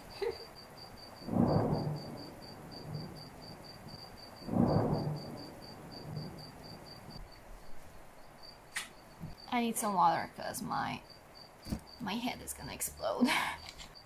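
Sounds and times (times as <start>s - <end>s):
thunder rolling: 1.0s - 7.3s
pouring rain: 1.1s - 8.7s.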